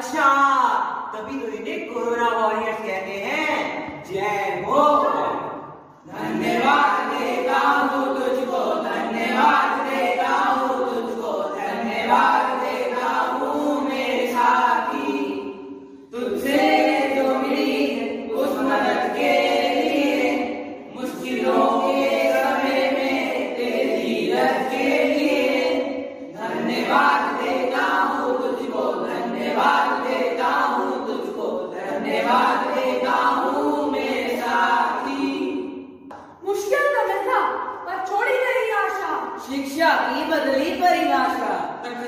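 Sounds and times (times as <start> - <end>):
boys singing unaccompanied: 3.3 - 35.8.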